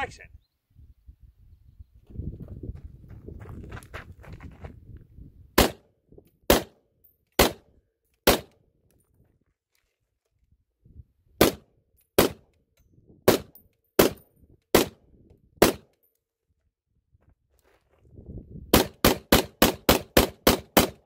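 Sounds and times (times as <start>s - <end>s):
rifle gunshots: 5.6s - 5.8s, 6.5s - 6.8s, 7.4s - 7.6s, 8.2s - 8.5s, 11.4s - 11.6s, 12.2s - 12.4s, 13.3s - 15.0s, 15.6s - 15.8s, 18.7s - 21.0s.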